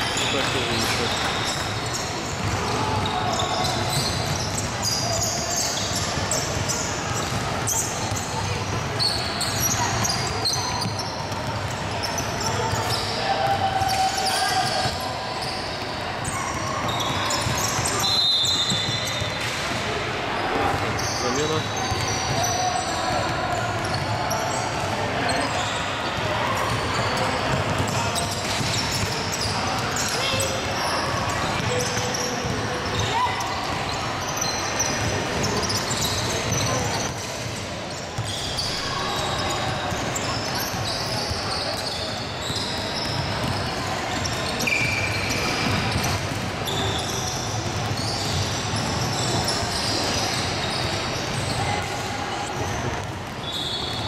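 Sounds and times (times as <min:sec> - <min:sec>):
shoes squeaking on gym floor: 0:00.0 - 0:13.2, 0:13.8 - 0:19.4, 0:20.7 - 0:23.1, 0:23.8 - 0:37.3, 0:37.9 - 0:51.7, 0:52.4 - 0:54.0
players' voices echoing: 0:00.0 - 0:54.0
basketball bouncing on wooden court: 0:00.6 - 0:13.0, 0:26.2 - 0:29.6, 0:30.4 - 0:34.0, 0:42.5 - 0:51.6.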